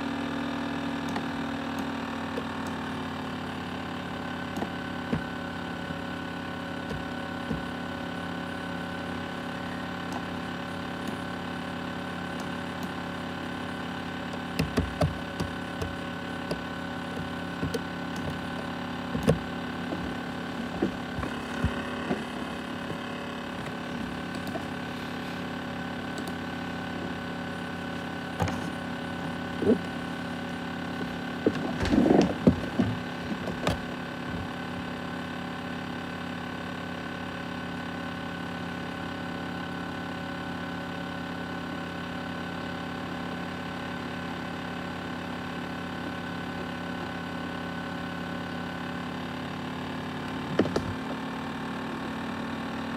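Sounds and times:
laptop fan whine: 0.0s - 42.2s
knocks and rustling: 14.4s - 25.3s, 28.3s - 30.0s, 30.9s - 34.6s.

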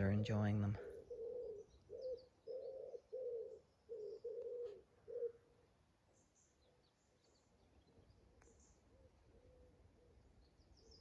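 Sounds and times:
wood pigeon cooing: 0.0s - 5.6s, 8.3s - 11.0s
faint small-bird chirps: 0.3s - 5.4s, 6.1s - 11.0s.

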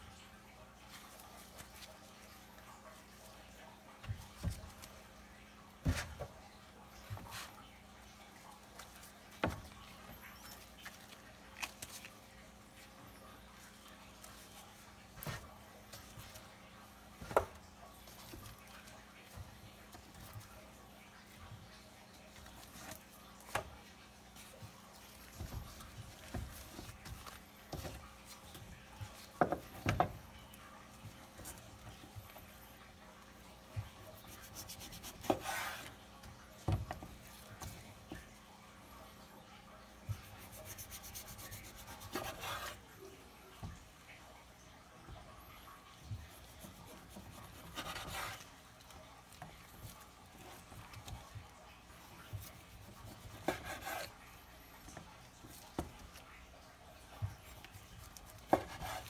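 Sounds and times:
knife and meat on cutting board: 40.3s - 42.8s, 52.8s - 54.1s, 58.1s - 59.0s.

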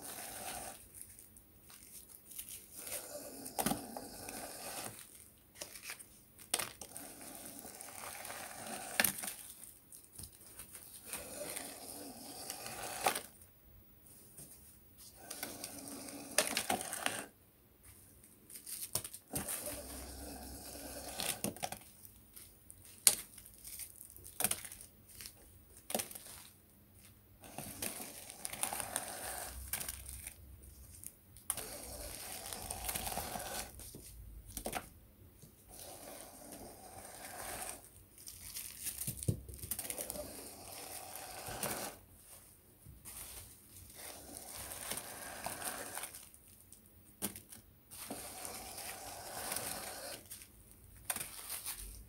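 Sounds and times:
plastic crinkling and crunching: 0.0s - 11.9s, 21.2s - 34.9s, 37.6s - 42.4s, 43.0s - 52.0s.

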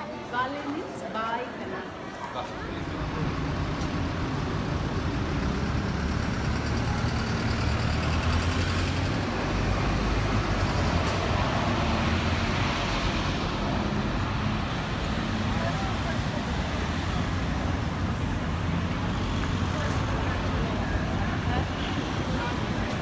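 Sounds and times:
road traffic: 0.0s - 23.0s
bus engine passing: 2.0s - 23.0s.

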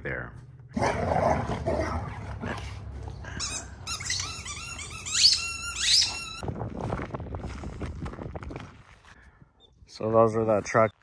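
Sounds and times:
dog whining in squeaks: 3.3s - 6.4s.

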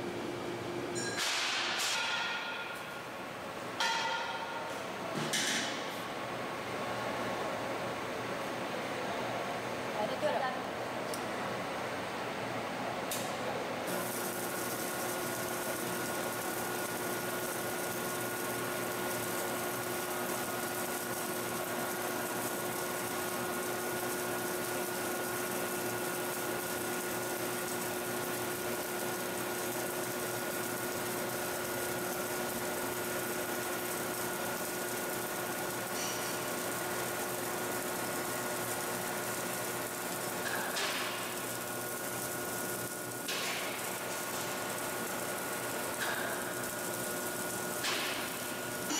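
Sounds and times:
welding machine humming: 13.8s - 48.9s.

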